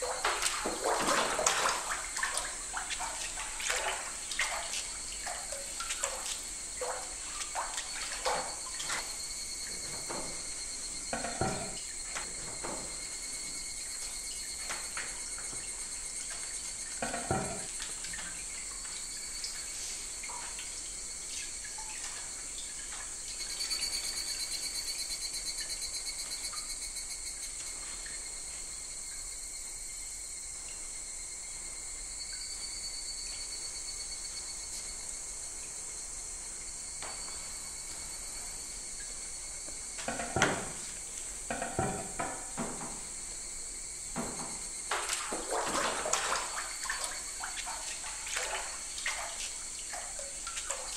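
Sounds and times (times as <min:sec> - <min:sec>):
water sloshing and splashing: 0:00.0 - 0:24.1, 0:37.1 - 0:50.9
crickets chirring: 0:00.0 - 0:50.9.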